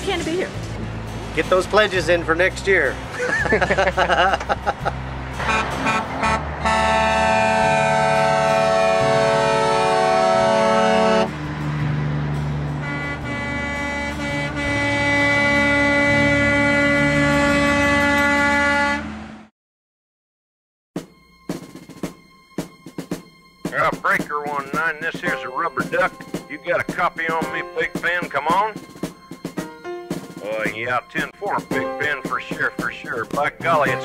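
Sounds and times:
truck engines running: 0.0s - 19.5s, 21.2s - 34.0s
truck air horn blasts: 5.4s - 11.4s, 12.5s - 19.5s, 24.5s - 28.9s, 31.2s - 34.0s.

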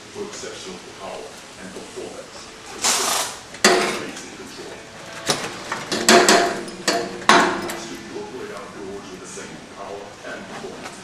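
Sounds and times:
metal exhaust pipes clanking: 3.5s - 9.4s.

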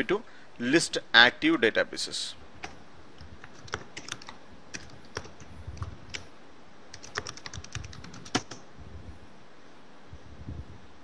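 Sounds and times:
computer keyboard typing: 3.4s - 6.2s, 6.9s - 8.6s.

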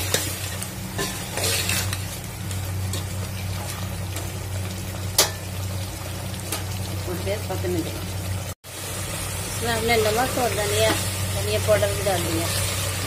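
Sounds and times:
metal spatula scraping a pot: 0.0s - 2.1s
food sizzling: 0.0s - 13.0s.

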